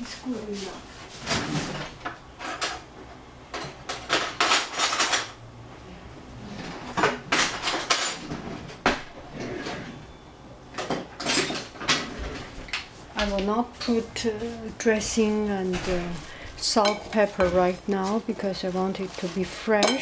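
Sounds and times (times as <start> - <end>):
dishes and cutlery clattering: 10.8 - 12.1, 16.7 - 17.6, 19.8 - 20.0.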